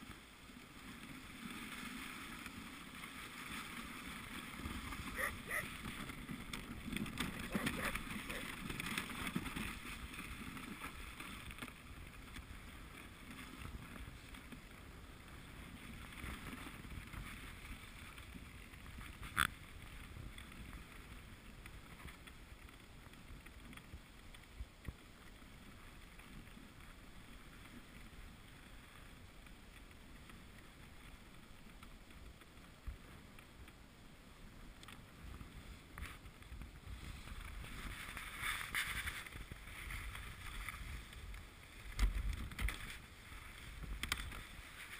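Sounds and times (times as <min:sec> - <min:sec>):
sled runners scraping snow: 0:00.0 - 0:33.6, 0:34.4 - 0:44.9
wind on microphone: 0:04.4 - 0:10.1.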